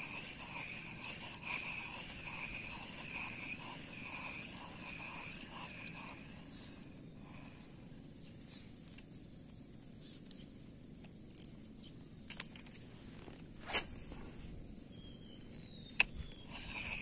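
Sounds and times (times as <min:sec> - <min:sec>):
reel whirring: 0:00.0 - 0:07.6, 0:16.0 - 0:17.0
fishing cast swish: 0:13.6 - 0:14.1.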